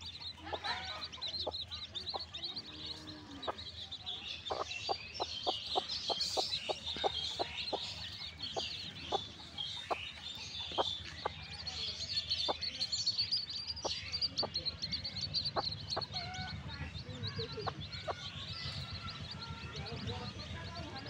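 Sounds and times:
chicks peeping: 0:00.0 - 0:21.0
hen clucking: 0:00.2 - 0:11.4.

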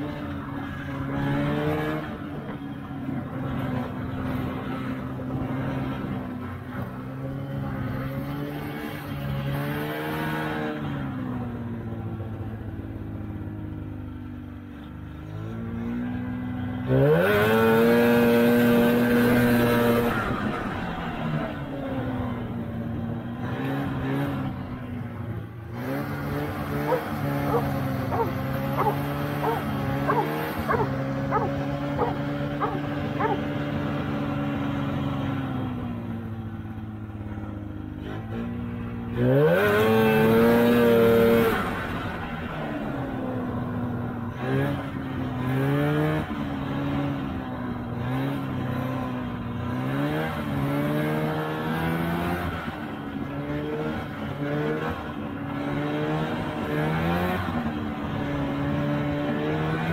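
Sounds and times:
snowmobile engine running: 0:15.2 - 0:59.9.

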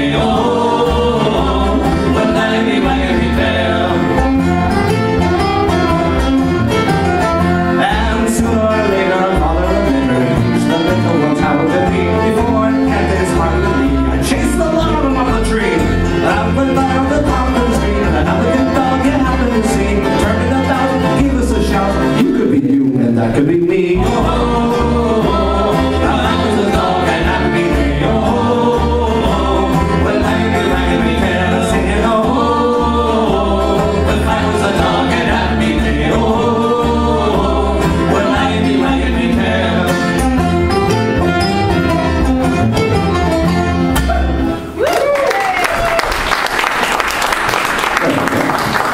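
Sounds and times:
banjo: 0:00.0 - 0:44.7
acoustic guitar: 0:00.0 - 0:44.8
upright double bass: 0:00.0 - 0:44.9
person singing: 0:07.4 - 0:42.2.

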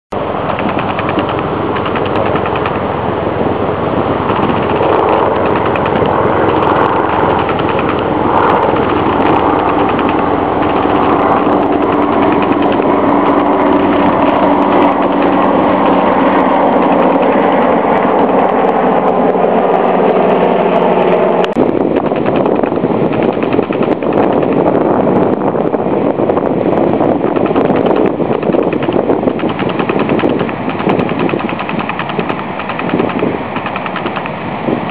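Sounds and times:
rough rapid noise: 0:00.2 - 0:18.7, 0:20.2 - 0:24.8, 0:27.1 - 0:34.9
small engine running: 0:00.2 - 0:18.9, 0:20.2 - 0:24.6, 0:27.3 - 0:34.9.

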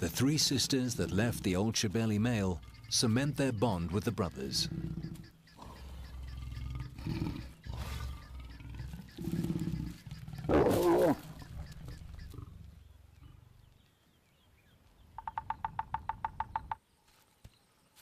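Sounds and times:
lions growling: 0:00.0 - 0:13.8
woodpecker drumming on wood: 0:01.2 - 0:10.5, 0:11.2 - 0:12.4, 0:15.1 - 0:16.8
lion snarling: 0:04.4 - 0:13.6.

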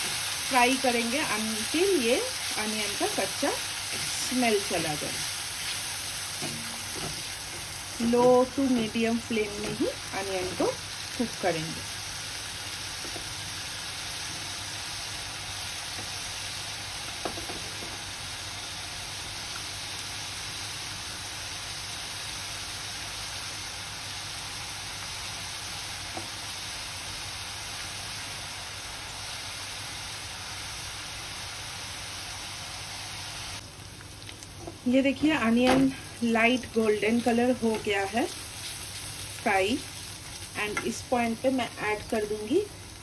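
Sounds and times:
onion paste sizzling in oil: 0:00.0 - 0:43.0.

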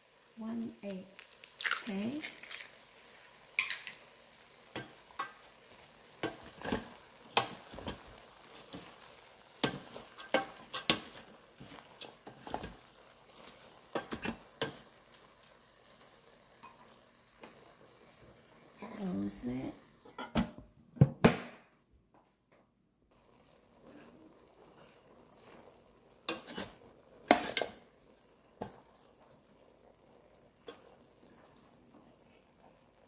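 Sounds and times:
faint sizzle: 0:00.0 - 0:20.4, 0:23.0 - 0:33.0
spatula scraping metal pot: 0:26.3 - 0:27.8.

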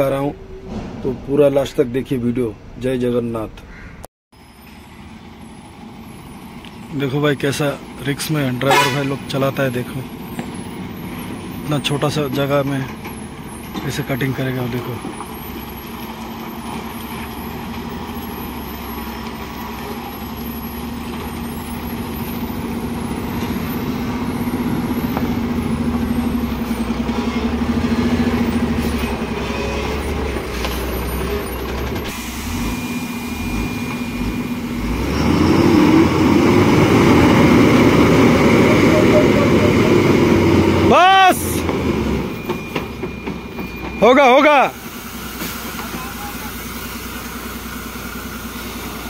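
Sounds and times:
truck diesel engine labouring: 0:04.4 - 0:49.0.

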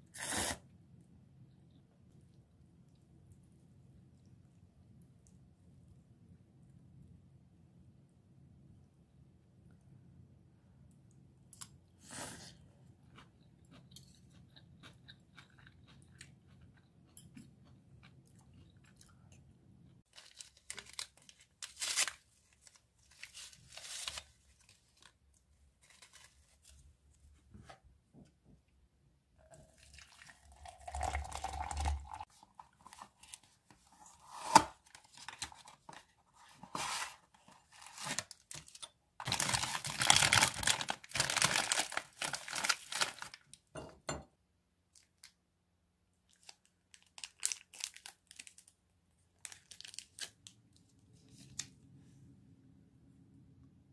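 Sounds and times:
utensil and eating sounds: 0:10.9 - 0:26.8, 0:29.4 - 0:43.7
plastic packaging crinkling: 0:20.1 - 0:25.2, 0:25.8 - 0:26.8, 0:36.7 - 0:43.5, 0:46.3 - 0:48.7, 0:49.4 - 0:50.5.

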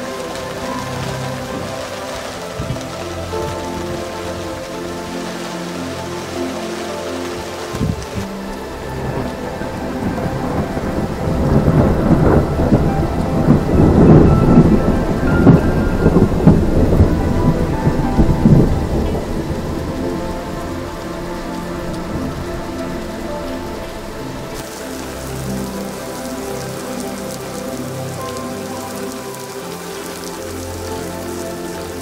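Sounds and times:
rolling thunder: 0:00.0 - 0:05.2, 0:07.3 - 0:27.6
heavy rain on a puddle: 0:00.0 - 0:32.0.

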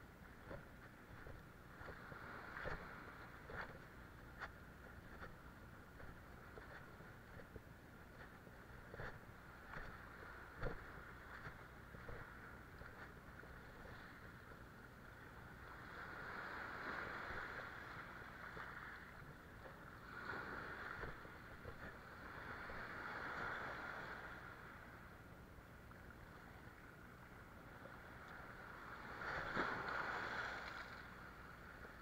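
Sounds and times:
small waves washing over rocks: 0:00.4 - 0:03.8, 0:20.0 - 0:24.5, 0:28.2 - 0:32.0.

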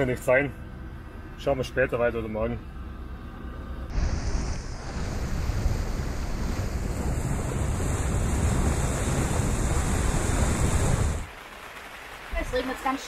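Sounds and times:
wind buffeting microphone: 0:03.9 - 0:11.3
water rushing along hull: 0:03.9 - 0:13.0.

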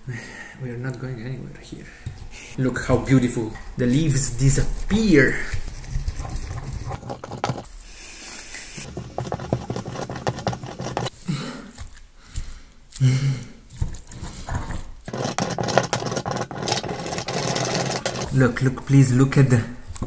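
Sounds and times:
pestle pounding in stone mortar: 0:06.5 - 0:07.7, 0:08.8 - 0:11.1, 0:14.6 - 0:18.3.

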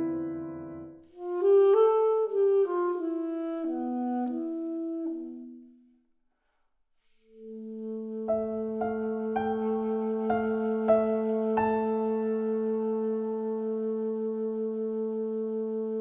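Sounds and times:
piano chords: 0:00.0 - 0:01.0, 0:07.6 - 0:16.0
trombone: 0:00.0 - 0:05.4, 0:07.5 - 0:16.0
alto saxophone: 0:00.0 - 0:05.8, 0:07.4 - 0:16.0.

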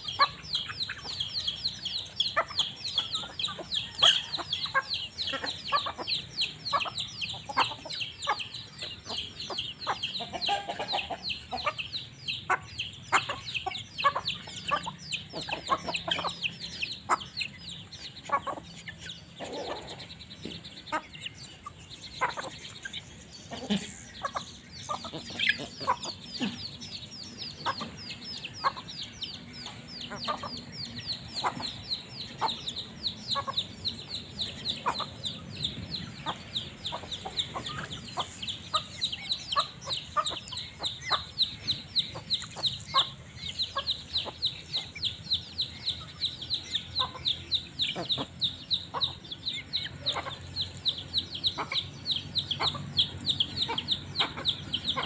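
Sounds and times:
chickens clucking: 0:00.0 - 0:55.0
chicks peeping: 0:00.0 - 0:55.0.

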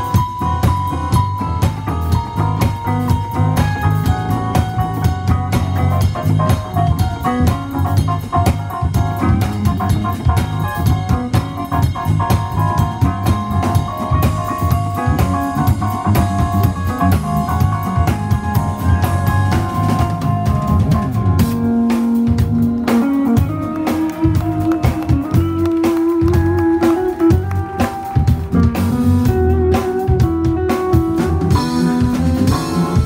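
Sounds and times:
busy drum kit: 0:00.0 - 0:33.0
electric bass: 0:00.0 - 0:33.0
electric guitar: 0:00.0 - 0:33.0
keyboard lines: 0:00.0 - 0:33.0.

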